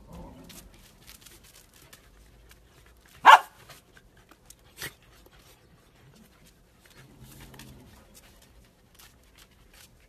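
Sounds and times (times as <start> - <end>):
dog barking: 3.2 - 3.6.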